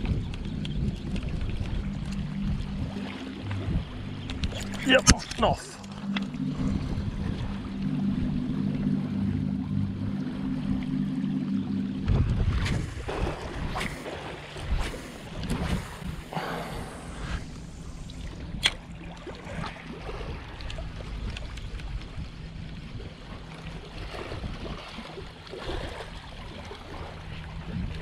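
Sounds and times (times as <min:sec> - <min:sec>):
wind on microphone: 0:00.0 - 0:11.1, 0:12.0 - 0:26.1
waves lapping against rocks: 0:12.1 - 0:28.0.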